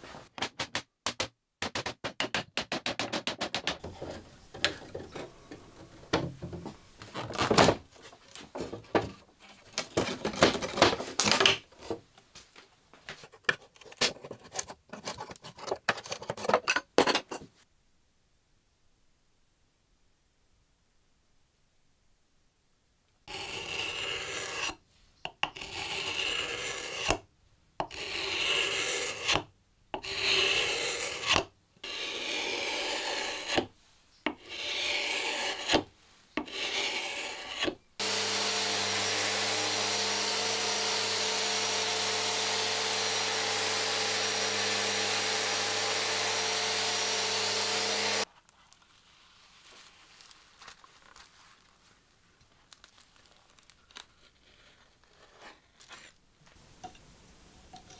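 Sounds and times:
paint scraper scraping wood: 30.0 - 33.7, 34.3 - 35.8, 36.4 - 48.3.

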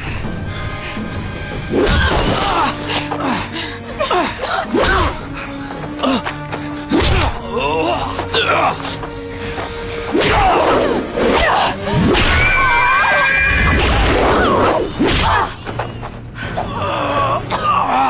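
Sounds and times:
pitched cries: 12.3 - 13.8.

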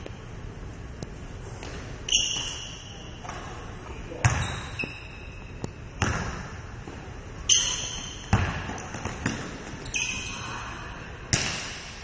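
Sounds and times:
short high squeak: 2.1 - 3.2, 4.4 - 5.5, 9.8 - 10.6
basketball bouncing on wooden floor: 4.2 - 4.6, 6.0 - 6.4, 8.2 - 9.8.

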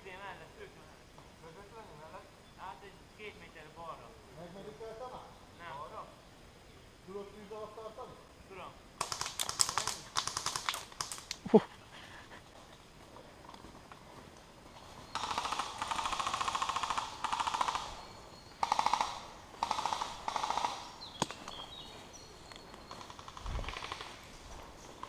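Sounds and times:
airsoft gun firing full auto: 9.0 - 11.2, 15.2 - 18.0, 18.6 - 20.9.

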